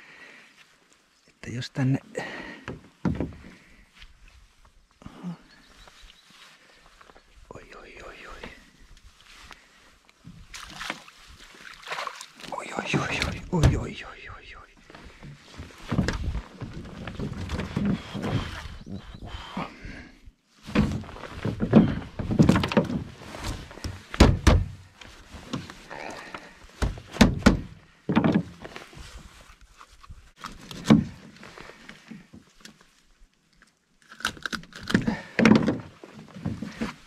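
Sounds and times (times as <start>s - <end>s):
thunks against boat hull: 23.8s - 24.8s, 26.8s - 28.5s.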